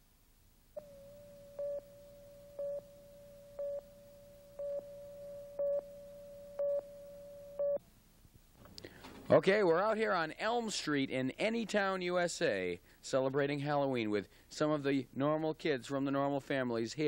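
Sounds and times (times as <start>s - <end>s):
steady beep tone: 0.8s - 7.8s.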